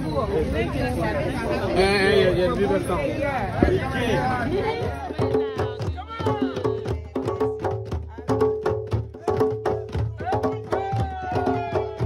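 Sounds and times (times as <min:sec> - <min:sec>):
djembe hand drums: 0:04.4 - 0:12.0.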